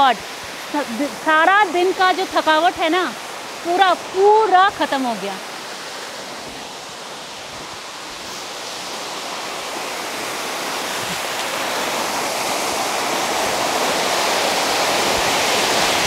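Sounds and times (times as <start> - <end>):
waterfall splashing into pool: 7.6 - 16.0.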